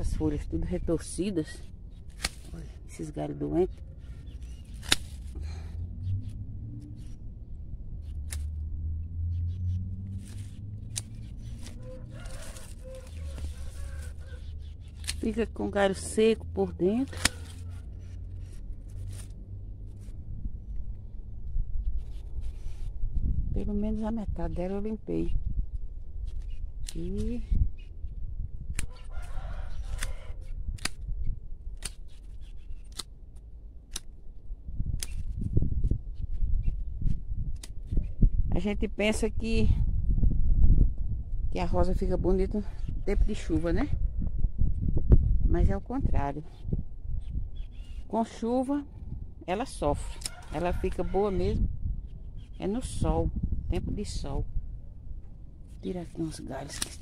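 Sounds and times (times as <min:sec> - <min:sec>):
low rumble: 0:00.0 - 0:32.0, 0:32.6 - 0:57.0
leaves rustling: 0:01.2 - 0:05.6, 0:10.0 - 0:20.4, 0:55.6 - 0:57.0
pruning shears clicking: 0:02.0 - 0:02.6, 0:04.3 - 0:05.4, 0:08.2 - 0:08.6, 0:10.2 - 0:16.3, 0:16.9 - 0:17.8, 0:26.3 - 0:27.3, 0:28.7 - 0:29.0, 0:30.8 - 0:31.0, 0:31.7 - 0:34.1, 0:35.0 - 0:35.4, 0:50.1 - 0:51.0, 0:56.3 - 0:57.0.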